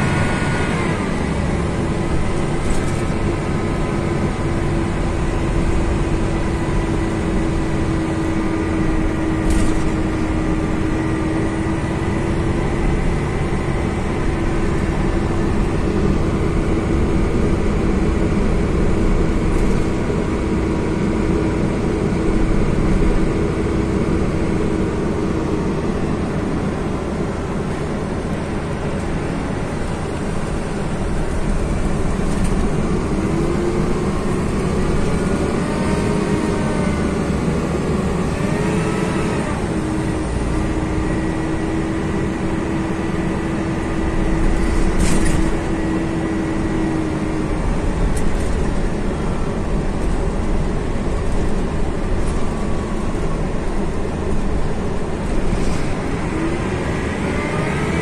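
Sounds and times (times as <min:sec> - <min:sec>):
coach diesel engine rumble: 0:00.0 - 0:58.0.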